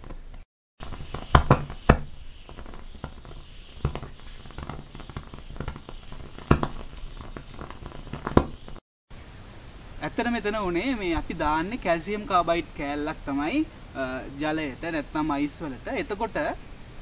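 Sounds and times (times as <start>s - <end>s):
gas flame popping and crackling: 0.0s - 8.8s.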